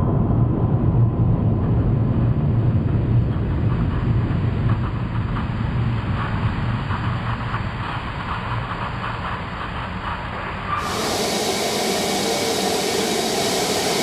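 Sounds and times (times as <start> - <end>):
power hammer machinery drone: 1.9 - 14.0
crackling hiss: 10.7 - 14.0.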